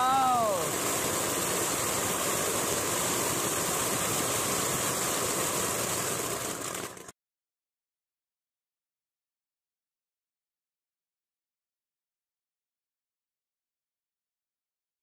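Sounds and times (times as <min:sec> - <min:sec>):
firework fountain hissing: 0:00.0 - 0:07.2.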